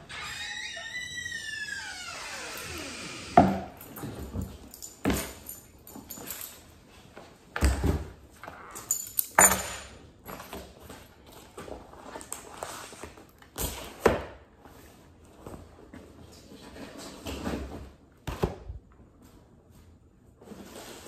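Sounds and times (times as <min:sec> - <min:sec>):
keys landing on table: 0:03.7 - 0:06.6, 0:08.8 - 0:10.5.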